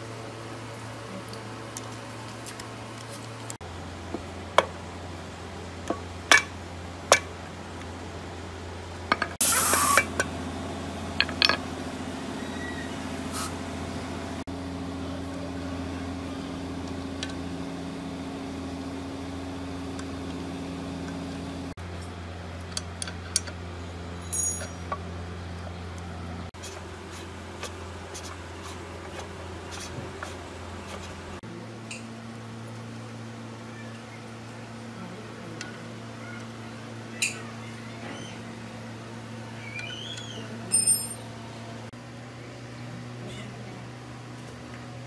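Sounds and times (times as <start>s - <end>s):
metal clinks of tools and parts: 24.2s - 25.0s, 40.7s - 41.3s.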